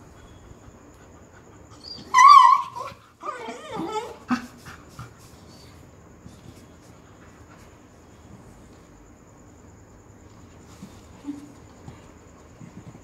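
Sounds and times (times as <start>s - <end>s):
dog crying and whining: 1.8s - 4.5s.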